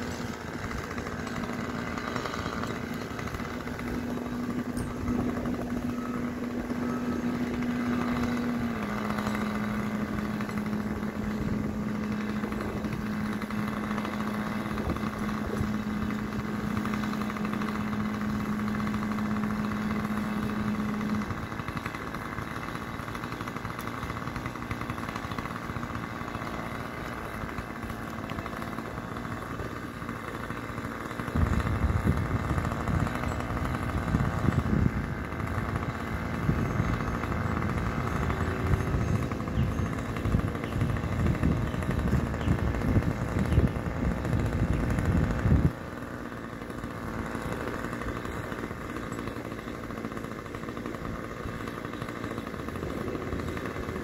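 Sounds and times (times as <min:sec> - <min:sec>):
small engine running: 0:00.0 - 0:54.0.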